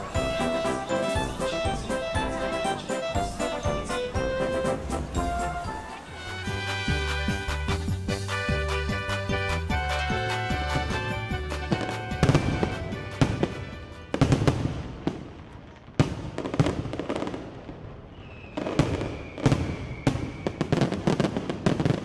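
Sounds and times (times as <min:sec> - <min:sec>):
background music: 0:00.0 - 0:14.6
firework whistle: 0:00.0 - 0:15.0, 0:18.0 - 0:21.9
fireworks banging and crackling: 0:00.0 - 0:22.0.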